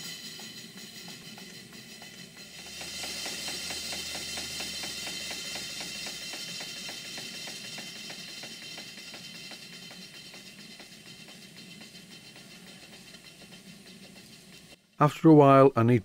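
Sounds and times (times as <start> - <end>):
steam engine exhaust beat: 0.0 - 15.2
steady steam hiss: 0.0 - 15.7
valve-gear clicks: 2.1 - 14.8.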